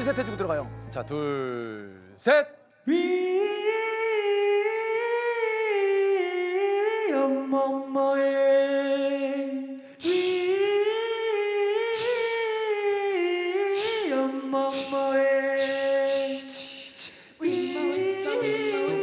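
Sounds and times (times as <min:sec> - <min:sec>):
voices singing low notes: 0:02.9 - 0:19.0
man singing sliding notes: 0:10.0 - 0:19.0
vocal hissing percussion: 0:13.7 - 0:19.0.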